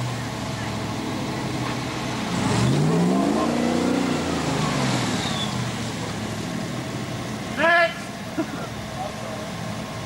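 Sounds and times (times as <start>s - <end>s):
engine revving: 0.0s - 7.5s.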